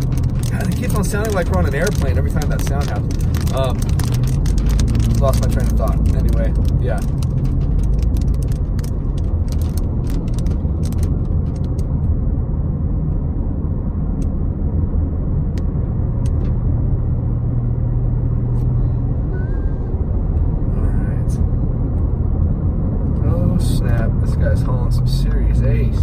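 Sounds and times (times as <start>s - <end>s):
raindrops ticking on windshield: 0.0s - 11.9s
car engine and road rumble: 0.0s - 26.0s.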